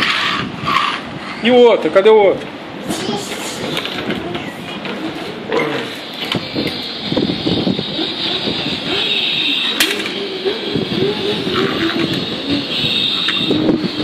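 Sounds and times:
toddler making vroom noises: 2.8 - 4.7.

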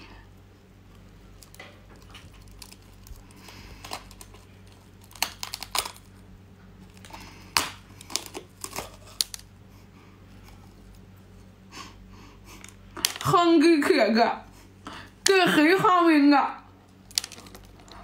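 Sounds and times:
teeth cracking urchin shell: 0.9 - 9.5, 16.9 - 18.0.

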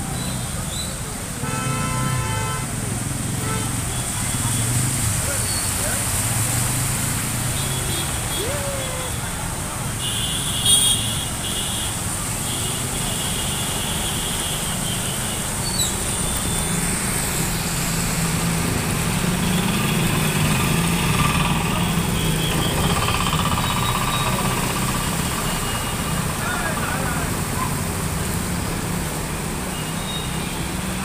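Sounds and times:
small engines humming: 19.2 - 26.0.

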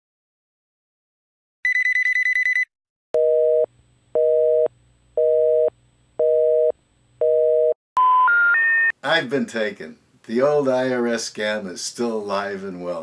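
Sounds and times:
telephone electronic ring: 1.6 - 3.6
busy signal beeps: 1.7 - 2.7, 8.0 - 8.9.

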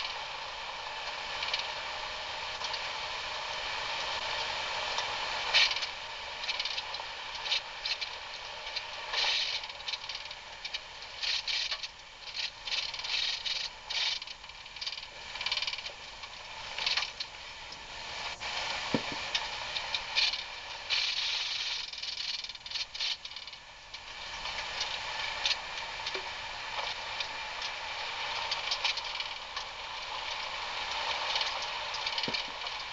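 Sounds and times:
vehicle rattling on rough trail: 18.0 - 32.9.

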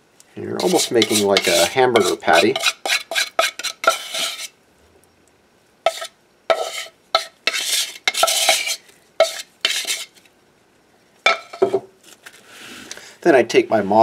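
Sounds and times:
metal spatula scraping on tile: 0.6 - 4.6, 5.8 - 10.3, 11.3 - 11.8.

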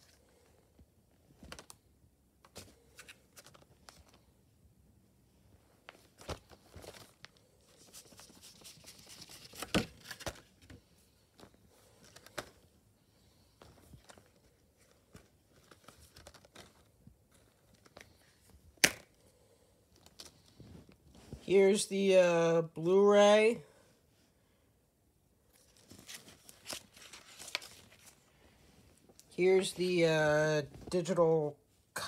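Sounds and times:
plastic case rustling and clicking: 1.4 - 1.8, 8.0 - 12.7, 13.6 - 19.2
plastic case snapping open: 18.8 - 19.1.

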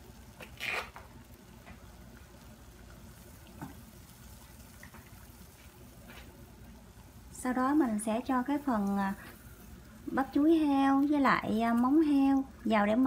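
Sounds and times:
water heating in pot: 0.0 - 13.0.

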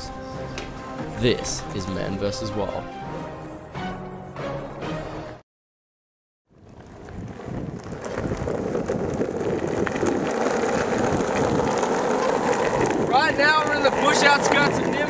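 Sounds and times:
skateboard wheels rolling on asphalt: 6.5 - 15.0
wind buffeting microphone: 6.5 - 15.0.

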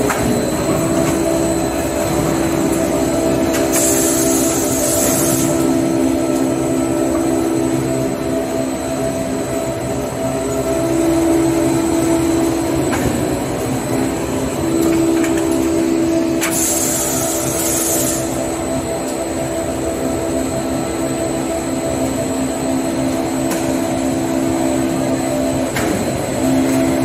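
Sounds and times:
machine drone with whine: 0.0 - 27.0.

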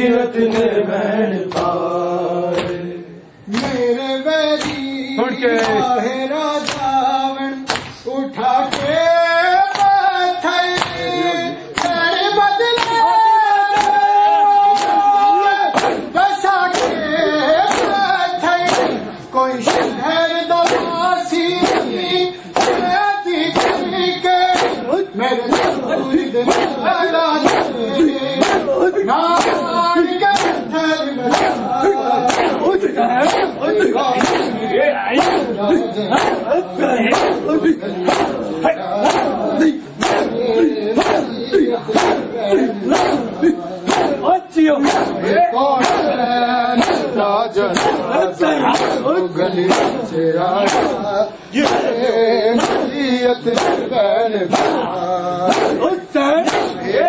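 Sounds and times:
men chanting in unison: 0.0 - 57.0
voices singing: 0.0 - 57.0
hands slapping on chests: 3.5 - 3.8, 4.6 - 4.9, 6.6 - 6.9, 7.7 - 8.0, 10.8 - 11.0, 11.8 - 12.0, 12.7 - 13.0, 13.7 - 14.0, 14.7 - 15.0, 15.7 - 18.1, 18.7 - 20.0, 20.6 - 21.0, 21.6 - 22.0, 22.6 - 22.9, 23.5 - 24.8, 25.5 - 27.8, 28.4 - 28.7, 29.3 - 30.7, 31.3 - 34.6, 35.2 - 36.5, 37.1 - 39.4, 40.0 - 40.4, 41.0 - 41.3, 41.9 - 42.3, 42.9 - 44.2, 44.8 - 45.2, 45.8 - 46.1, 46.8 - 47.1, 47.7 - 49.1, 49.7 - 51.0, 51.6 - 52.0, 52.6 - 52.9, 53.5 - 53.9, 54.5 - 56.8.

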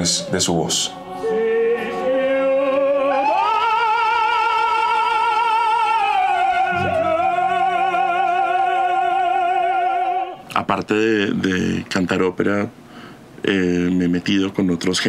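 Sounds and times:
operatic voice singing: 0.0 - 10.6
low accompaniment: 6.0 - 10.2.

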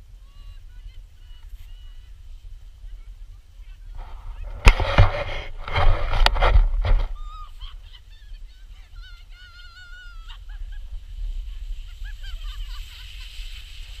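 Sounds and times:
wind rumble on microphone: 0.0 - 14.0
plastic sled scraping over snow: 4.0 - 8.0, 10.5 - 14.0
sled knocking on bumps: 4.4 - 7.2.

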